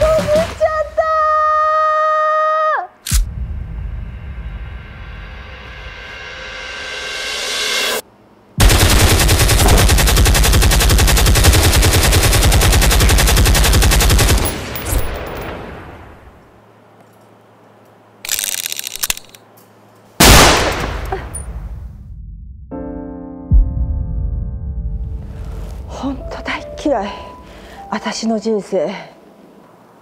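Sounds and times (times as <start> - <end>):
automatic gunfire: 8.6 - 14.5.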